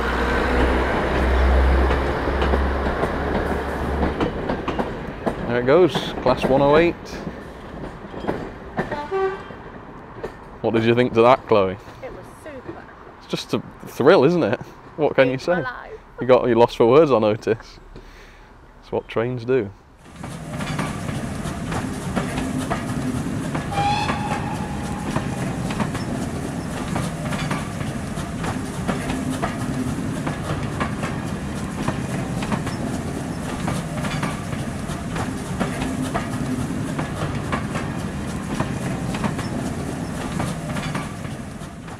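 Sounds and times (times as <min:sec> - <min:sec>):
train rumbling on rails: 0:00.0 - 0:19.1, 0:19.8 - 0:41.9
wheels clicking over rail joints: 0:00.5 - 0:12.9, 0:20.0 - 0:41.9.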